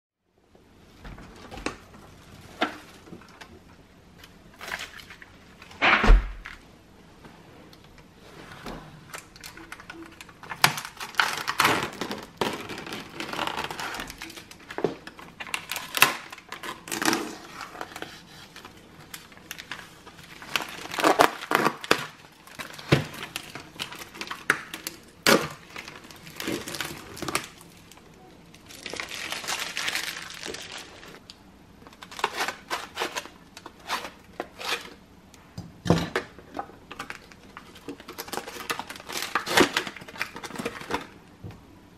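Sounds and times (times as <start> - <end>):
plastic film crinkling: 9.1 - 34.9, 36.9 - 41.2.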